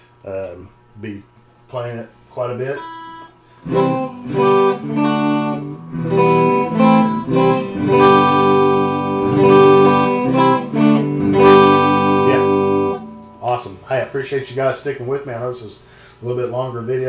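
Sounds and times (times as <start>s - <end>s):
electric guitar picked chords: 2.7s - 15.4s.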